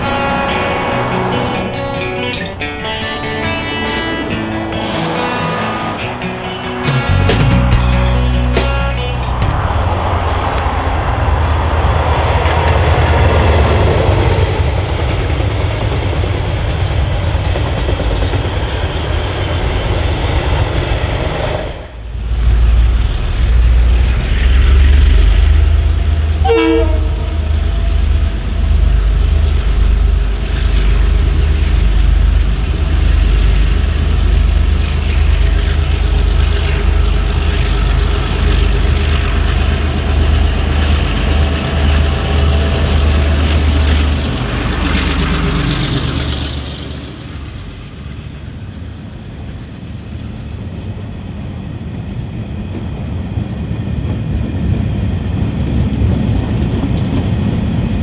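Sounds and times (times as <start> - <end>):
diesel locomotives working hard: 0.0 - 58.0
train rolling by: 0.0 - 58.0
locomotive horn toot: 26.4 - 28.0.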